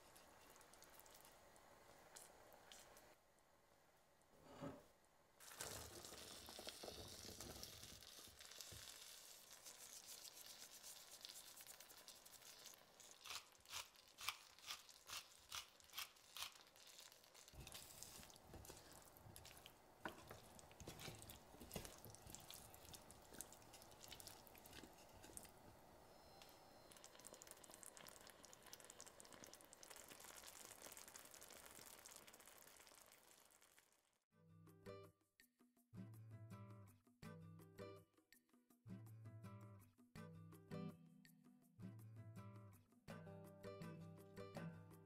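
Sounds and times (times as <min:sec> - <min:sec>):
soft sizzling in a pan: 0:00.0 - 0:34.2
wooden spoon stirring wet scraping: 0:05.6 - 0:25.6.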